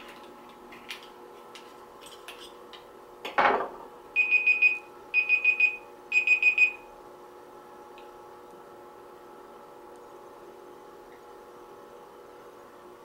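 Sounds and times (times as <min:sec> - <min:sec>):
phone alarm beeps: 0:04.2 - 0:06.8.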